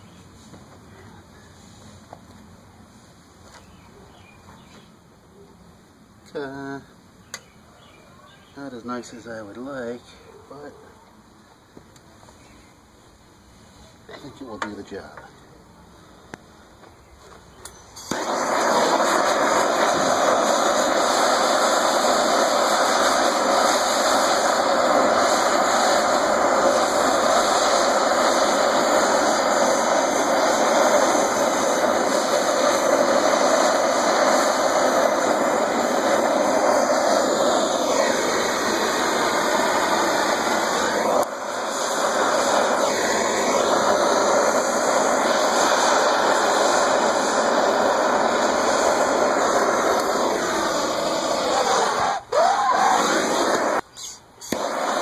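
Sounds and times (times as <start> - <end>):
propane torch flame rushing: 17.4 - 55.0.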